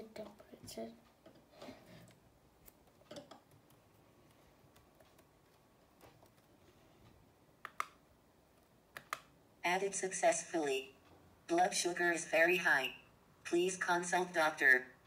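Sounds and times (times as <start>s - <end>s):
computer mouse clicks: 7.6s - 8.0s, 8.6s - 9.3s.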